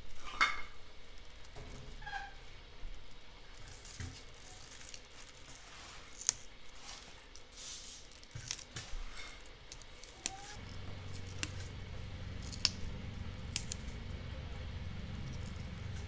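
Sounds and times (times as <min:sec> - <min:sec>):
low steady hum: 0:00.0 - 0:16.0
rustling of herb bunch: 0:02.8 - 0:16.0
chive stalks snapping: 0:03.6 - 0:14.2.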